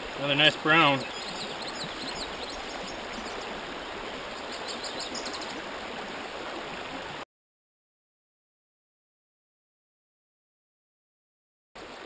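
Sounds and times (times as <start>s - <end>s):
creek water flowing: 0.0s - 7.2s, 11.8s - 12.0s.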